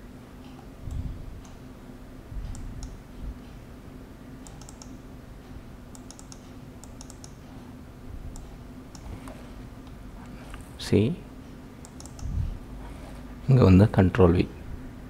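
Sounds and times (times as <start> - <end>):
low hum: 0.0 - 15.0
mouse and keyboard clicks: 4.4 - 5.0, 6.0 - 7.4, 8.3 - 9.6, 11.8 - 13.2.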